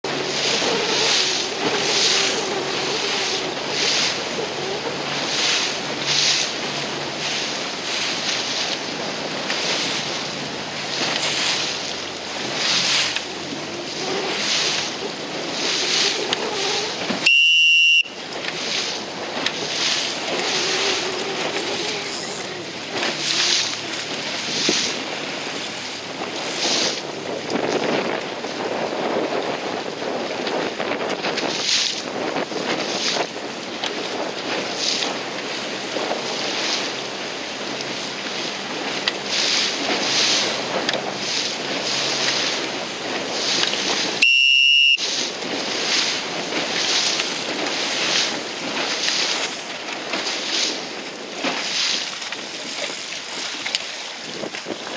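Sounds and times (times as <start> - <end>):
water slapping against boat: 0.0 - 54.9
whistle blast: 17.2 - 18.2, 44.2 - 45.0
wind buffeting microphone: 18.1 - 44.2, 45.0 - 54.9.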